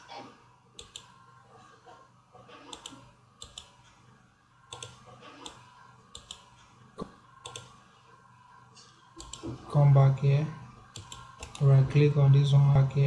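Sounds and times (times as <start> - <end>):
computer mouse clicks: 0.8 - 1.2, 2.6 - 3.8, 4.6 - 7.8, 9.2 - 9.6, 10.9 - 11.7.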